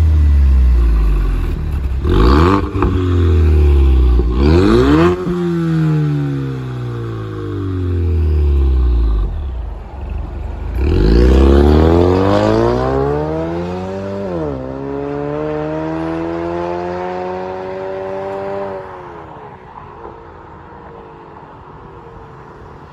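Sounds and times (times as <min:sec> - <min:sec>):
car engine accelerating hard: 0:10.6 - 0:18.9.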